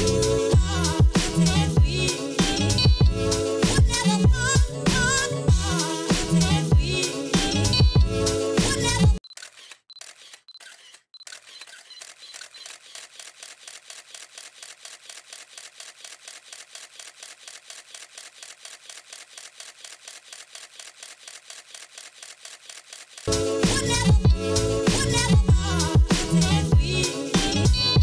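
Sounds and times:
camera shutter clicking: 9.3 - 23.3.

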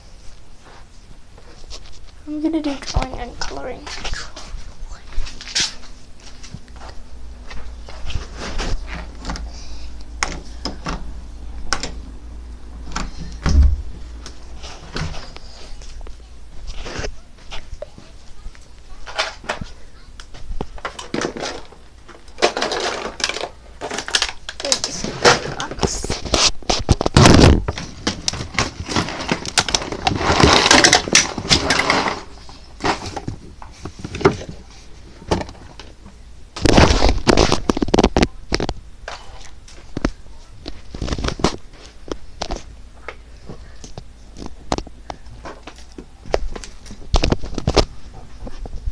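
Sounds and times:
heavy thump: 13.0 - 14.0
microphone handling noise: 25.7 - 28.8.

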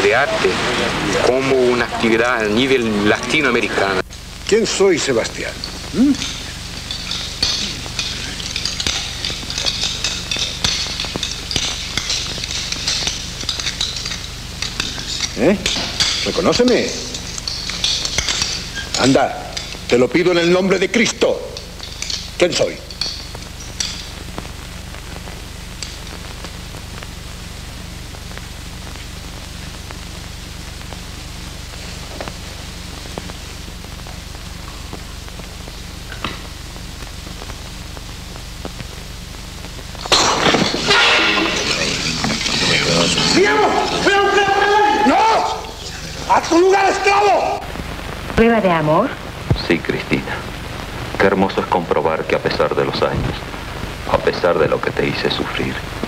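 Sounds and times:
steady low hum: 0.0 - 56.0
cutlery and dishes clinking: 5.6 - 24.1, 40.0 - 44.2.

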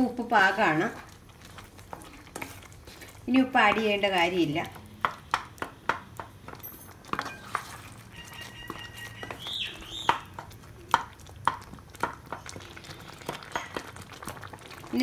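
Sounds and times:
wooden spatula scraping metal pan: 1.6 - 4.4, 7.1 - 9.4.

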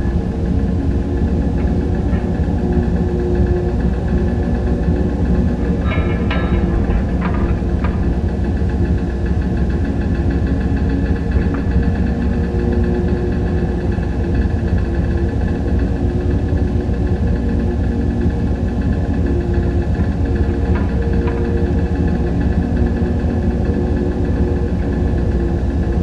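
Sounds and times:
low machine drone: 0.0 - 26.0
clattering knocks: 5.6 - 9.9, 11.2 - 12.8, 19.9 - 22.2.

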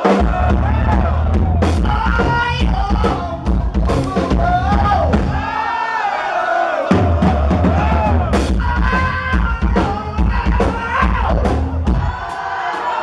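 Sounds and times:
live rock band playing: 0.0 - 5.7, 6.9 - 13.0
audience singing along: 5.2 - 8.4, 11.8 - 13.0.

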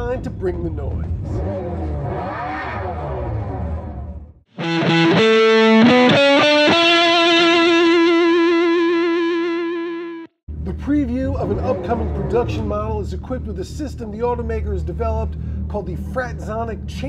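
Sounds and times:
distorted electric guitar riff: 4.5 - 10.4
low rumble with sweeping tones: 10.5 - 17.0.

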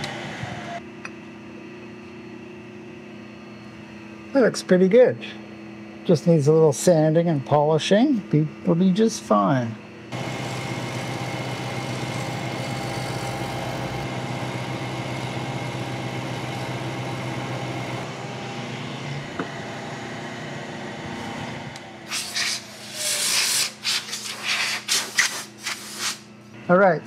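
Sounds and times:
milling machine cutting metal: 10.2 - 19.7.

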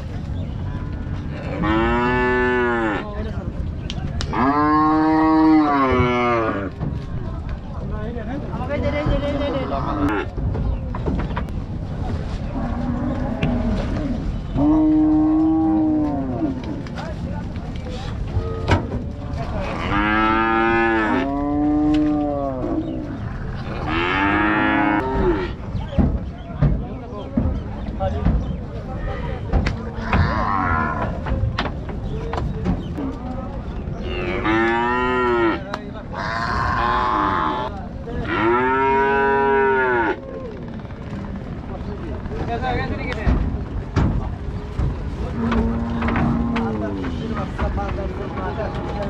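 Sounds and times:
cow mooing: 1.3 - 3.1, 23.6 - 25.5, 36.2 - 40.2.

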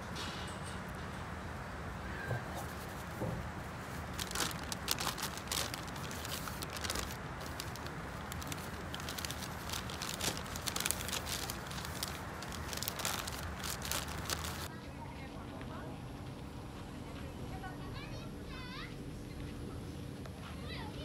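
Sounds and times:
paper bag crinkling: 3.8 - 14.7.

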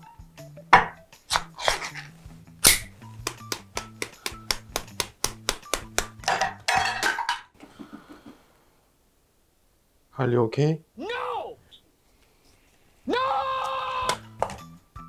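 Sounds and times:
palm slapping a can: 0.8 - 6.4.

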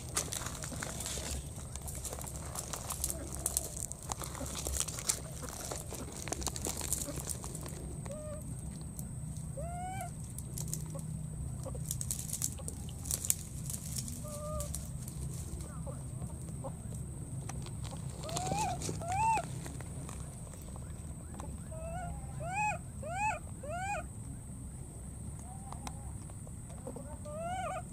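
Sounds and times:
baby monkey cooing: 18.2 - 19.5, 21.6 - 24.1, 26.9 - 27.9.

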